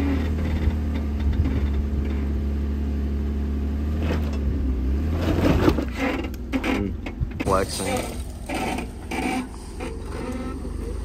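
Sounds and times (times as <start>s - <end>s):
car engine running low: 0.0s - 11.0s.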